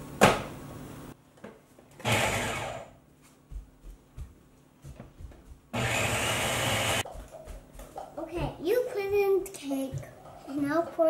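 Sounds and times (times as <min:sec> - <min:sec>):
countertop blender running: 0:02.0 - 0:03.0, 0:05.8 - 0:07.0.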